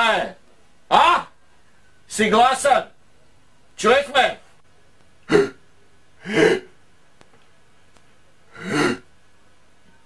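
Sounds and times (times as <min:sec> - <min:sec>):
man exclaiming loudly: 0:00.0 - 0:01.4.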